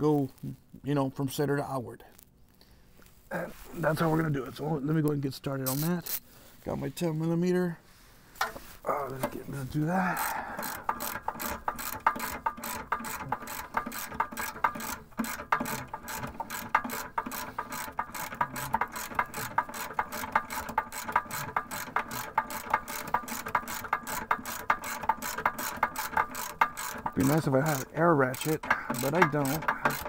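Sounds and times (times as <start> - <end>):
hand ratchet clicking: 5.6 - 6.2, 10.1 - 30.0.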